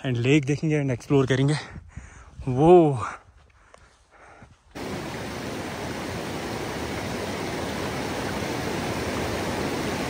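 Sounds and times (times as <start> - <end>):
stream water rushing: 4.8 - 10.0.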